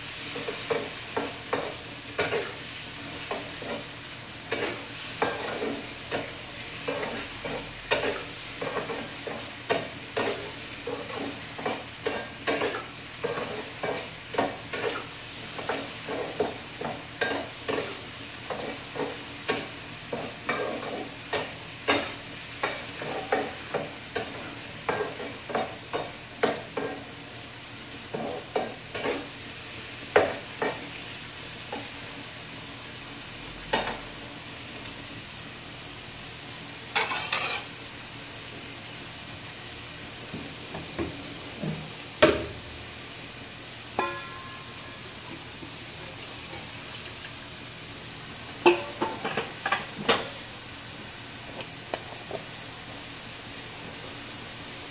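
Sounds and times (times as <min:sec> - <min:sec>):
food sizzling in a pan: 0:00.0 - 0:54.9
utensil scraping a pan: 0:37.0 - 0:37.7.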